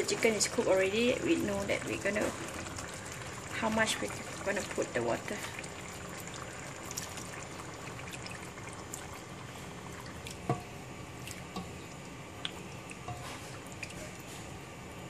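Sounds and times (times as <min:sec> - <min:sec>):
spatula stirring: 0:12.9 - 0:14.5.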